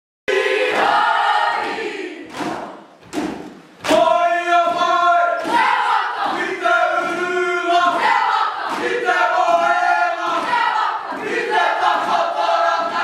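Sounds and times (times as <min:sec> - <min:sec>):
children chanting and singing: 0:00.3 - 0:02.8, 0:03.9 - 0:13.0
sharp percussive hits: 0:01.6 - 0:04.1.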